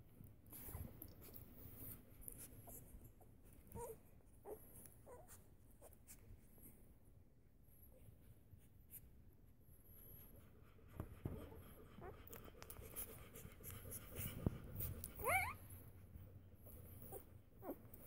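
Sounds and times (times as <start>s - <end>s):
puppies shuffling on blanket: 0.1s - 7.1s
puppy squealing: 15.2s - 15.6s.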